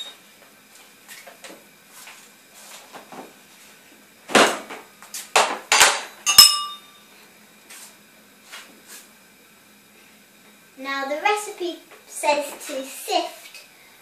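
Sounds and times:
ringing metallic clink: 6.3 - 7.0.

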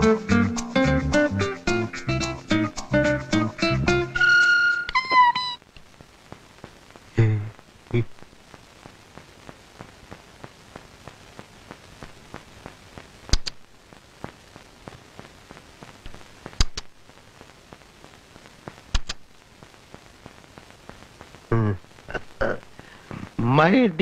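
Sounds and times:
sharp pops: 4.9 - 17.0, 18.4 - 23.4
crackle of small clicks: 5.6 - 23.0.

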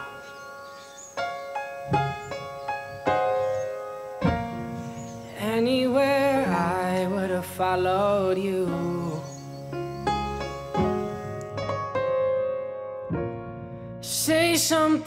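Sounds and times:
piano notes ringing: 0.0 - 15.0
person singing: 5.3 - 9.6, 14.0 - 15.0.

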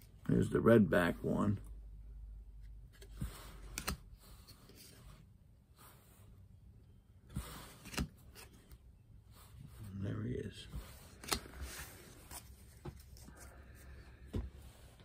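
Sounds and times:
cards rustling: 2.6 - 5.2, 7.3 - 15.0
cards clicking and tapping: 2.9 - 4.0, 7.7 - 8.6, 11.1 - 13.4.

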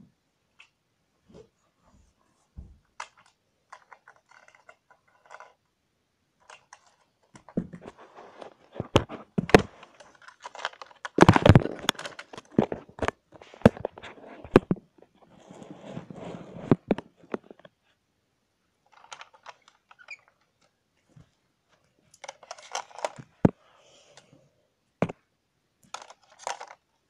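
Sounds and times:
scraping and rustling: 1.3 - 5.6, 6.4 - 17.8, 18.9 - 23.6, 25.9 - 26.9.

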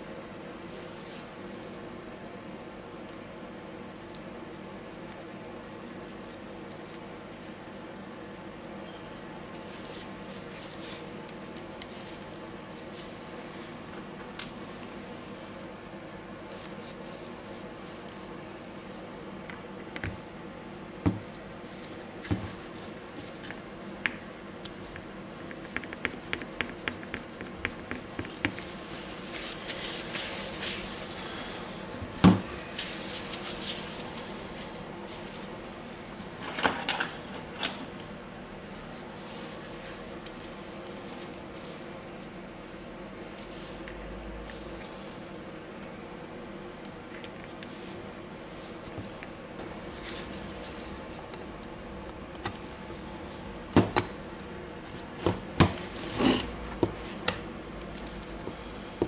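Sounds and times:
paper towel rustling: 26.9 - 31.7.

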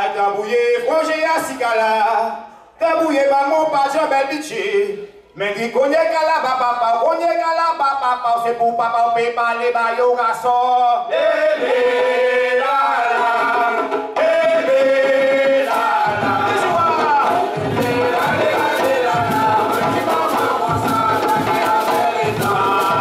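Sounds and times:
singing in long held notes: 11.1 - 23.0
hand drums beating: 13.5 - 23.0.

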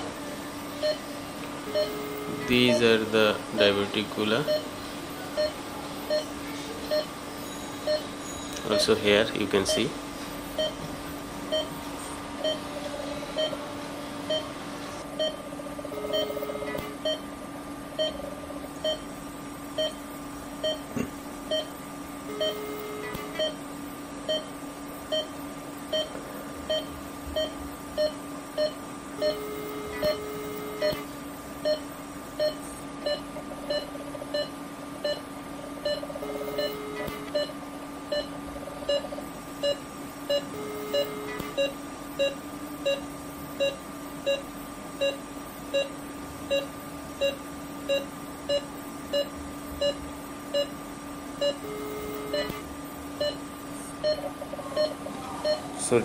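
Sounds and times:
steady electrical hum: 0.0 - 56.0
longer lower monitor tone: 0.8 - 9.0, 15.2 - 17.3, 21.5 - 23.7, 25.2 - 34.5, 35.8 - 39.1, 39.7 - 45.2, 51.4 - 53.4
patient monitor beeping: 0.8 - 10.9, 11.5 - 17.4, 18.0 - 19.1, 19.7 - 56.0.

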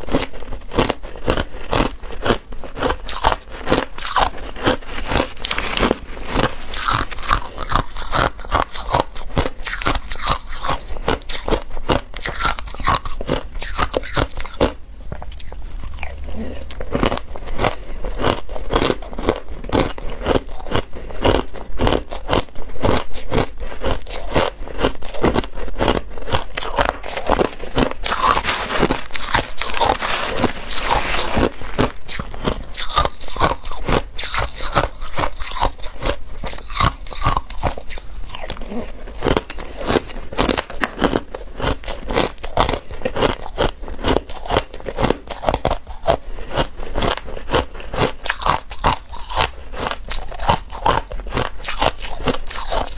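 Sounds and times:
crushed ice crunching: 0.1 - 9.1, 25.9 - 46.0.

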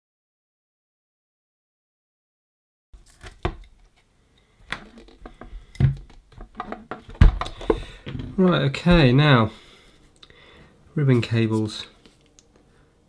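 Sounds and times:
plastic speaker casing clicks and knocks: 4.7 - 9.2.

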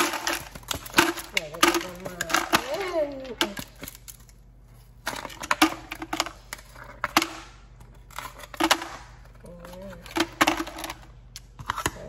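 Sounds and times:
ice cubes clattering into a bowl: 0.0 - 4.2
plastic ice tray twisting and knocking: 0.0 - 4.2.

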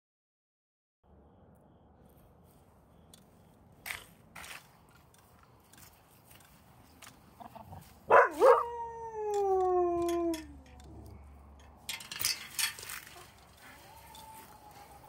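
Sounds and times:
metal gate latch rattling: 9.3 - 13.3.

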